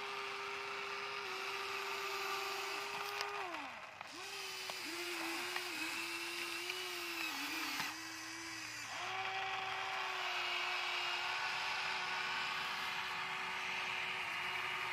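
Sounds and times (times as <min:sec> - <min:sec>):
small electric motors whining: 0:00.0 - 0:14.9.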